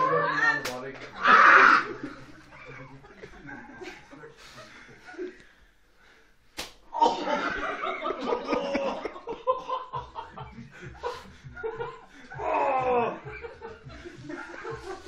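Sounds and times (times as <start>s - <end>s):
people yelling: 0.0s - 2.1s, 12.3s - 13.5s
people laughing loudly: 0.0s - 5.6s, 6.9s - 15.0s
elastic band snapping on skin: 6.6s - 6.8s.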